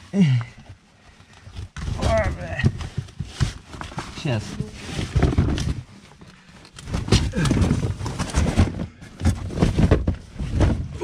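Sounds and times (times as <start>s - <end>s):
cardboard box scraping: 1.8s - 5.9s, 7.0s - 11.0s.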